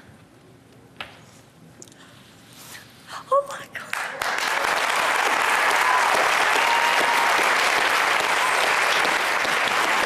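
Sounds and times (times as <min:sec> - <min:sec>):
audience applauding: 0:03.9 - 0:10.0.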